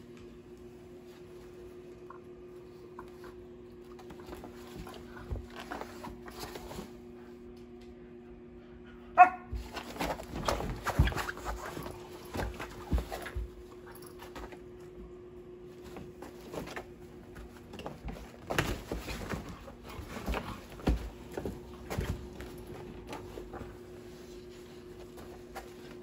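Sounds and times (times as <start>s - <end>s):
puppy yelp: 9.2s - 9.5s.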